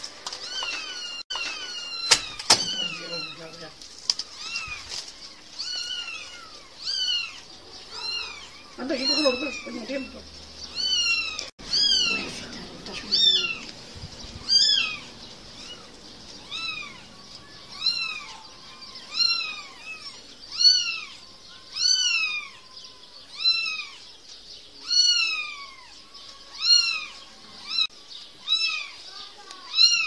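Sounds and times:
kitten meowing: 5.6s - 10.1s, 10.7s - 12.5s, 13.1s - 13.7s, 17.7s - 24.0s, 24.8s - 25.9s, 26.5s - 29.0s, 29.6s - 30.0s.

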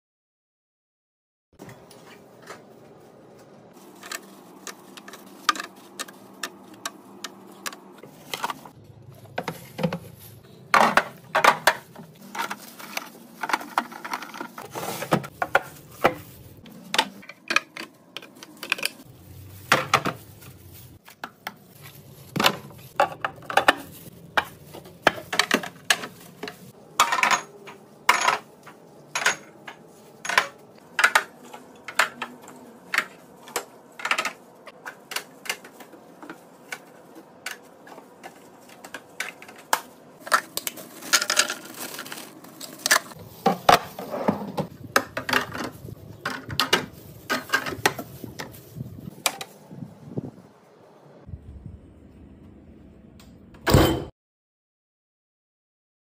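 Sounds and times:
items clinking in a refrigerator: 1.6s - 49.6s, 53.2s - 54.1s.

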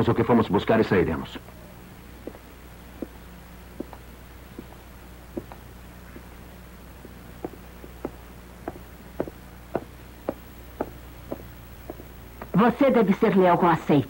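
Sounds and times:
low steady hum: 0.0s - 14.0s
short sharp footsteps: 2.2s - 12.6s.

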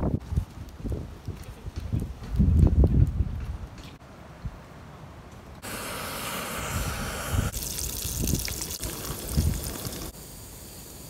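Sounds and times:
wind thumps on microphone: 0.0s - 4.0s.

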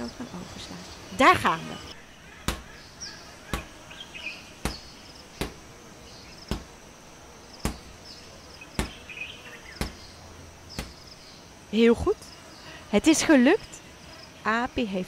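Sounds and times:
sharp knocks: 2.4s - 2.7s, 4.6s - 5.6s, 6.4s - 6.8s, 7.6s - 8.0s, 8.8s - 9.1s, 9.8s - 10.0s, 10.8s - 11.1s.

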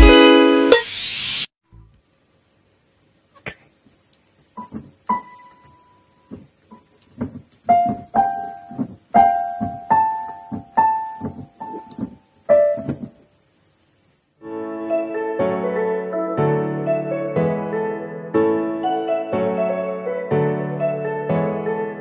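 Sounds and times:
music with held chords: 0.0s - 0.8s, 14.4s - 22.0s
electronic keyboard piano notes: 7.7s - 13.2s, 14.4s - 22.0s.

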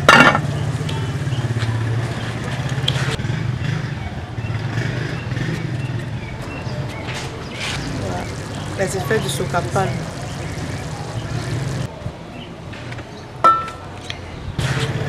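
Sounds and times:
engine droning: 0.0s - 11.9s.

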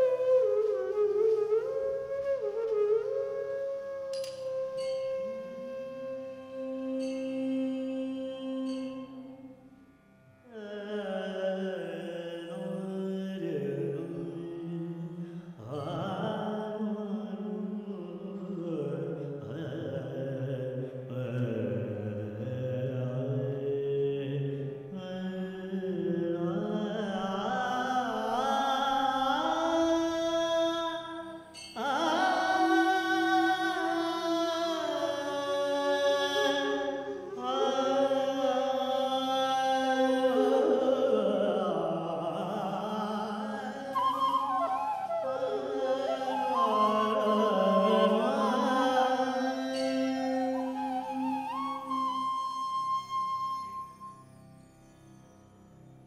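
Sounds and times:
man singing long held notes: 10.5s - 53.0s.

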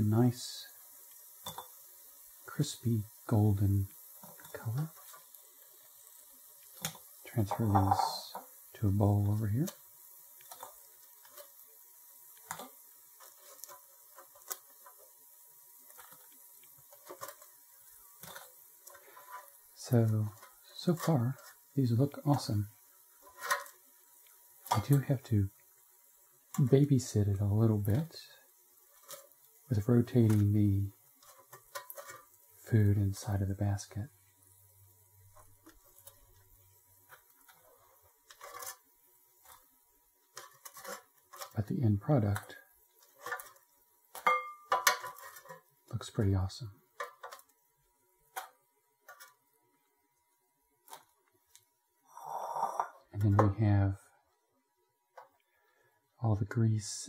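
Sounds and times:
tongs tapping and scraping basket: 4.2s - 8.6s, 10.4s - 11.7s, 12.4s - 15.2s, 15.8s - 17.6s, 18.2s - 22.5s, 23.2s - 25.1s, 28.9s - 32.4s, 35.2s - 41.6s, 42.3s - 45.7s, 47.0s - 47.6s, 48.3s - 49.4s.

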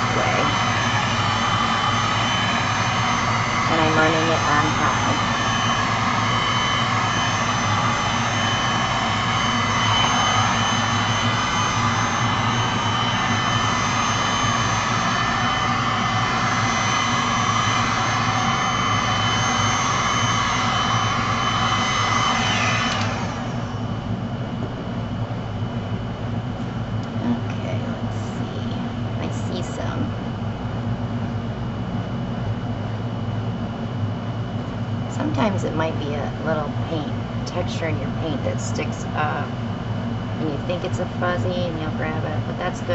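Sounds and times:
low steady hum: 0.0s - 42.9s
heat gun blowing: 15.2s - 23.6s.

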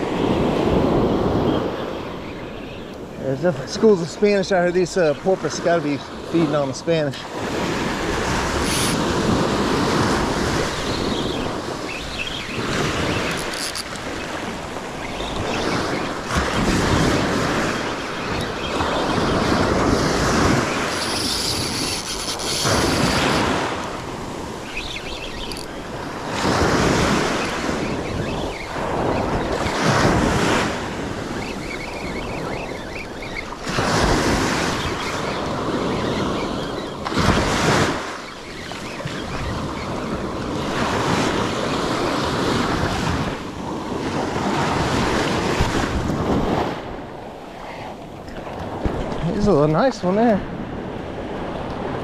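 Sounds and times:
wind buffeting microphone: 0.0s - 52.0s
surf breaking on sand: 3.2s - 13.5s, 14.1s - 24.7s, 25.8s - 31.4s.

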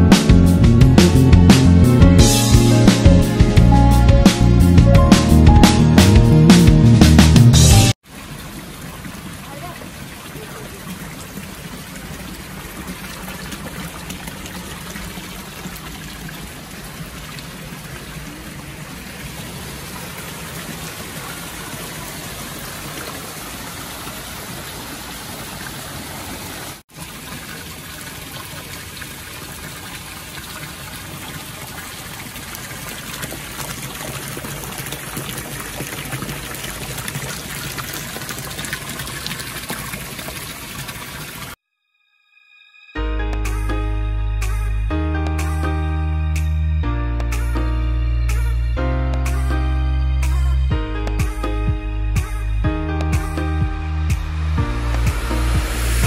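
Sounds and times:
fountain water splashing into pond: 8.0s - 41.6s, 53.1s - 56.0s.

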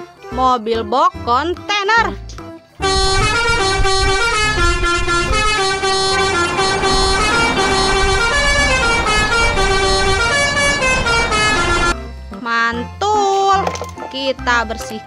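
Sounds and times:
low engine rumble: 2.8s - 12.0s
musical air horn playing a tune: 2.8s - 12.0s.

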